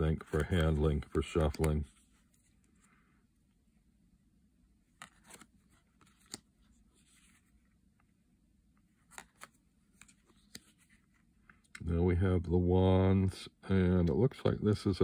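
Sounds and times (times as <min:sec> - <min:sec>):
cards tapping and sliding: 0:00.0 - 0:02.0, 0:04.9 - 0:07.6, 0:09.0 - 0:11.8.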